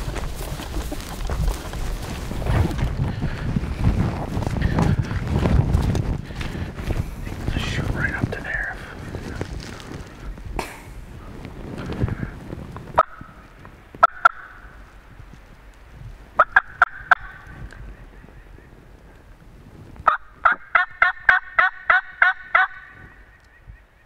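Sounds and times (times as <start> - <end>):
turkey yelps: 20.1 - 22.9.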